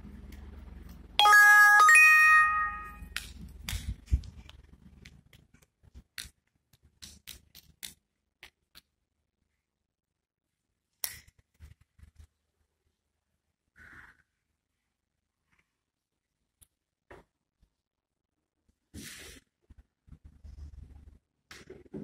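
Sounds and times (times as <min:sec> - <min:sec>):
two-note chime: 0:01.2 - 0:03.0.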